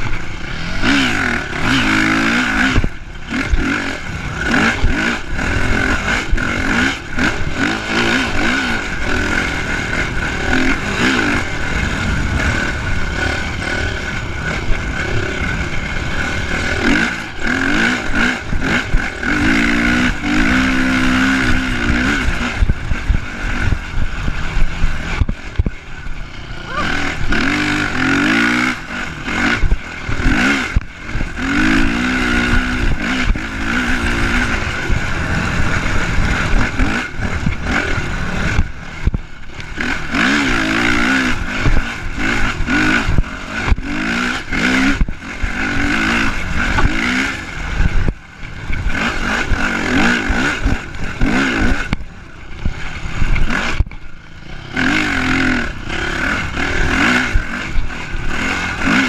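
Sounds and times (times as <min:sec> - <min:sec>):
dirt bike engine revving: 0:00.0 - 0:59.0
wind rush: 0:21.1 - 0:58.4.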